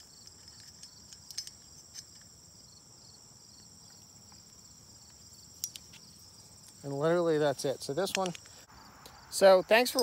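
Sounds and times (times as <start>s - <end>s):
insects chirping: 0.0s - 10.0s
metal tool clicks: 0.2s - 2.3s, 5.6s - 6.0s, 8.0s - 8.5s.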